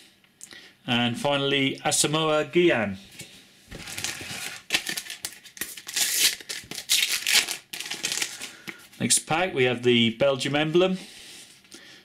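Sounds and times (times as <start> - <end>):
wrapper crinkling: 3.7 - 8.6
sticker packet tearing: 3.8 - 8.5.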